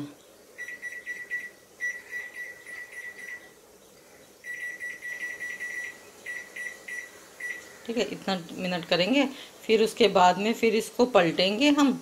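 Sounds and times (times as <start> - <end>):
microwave beeping: 0.0 - 3.6, 4.4 - 7.7.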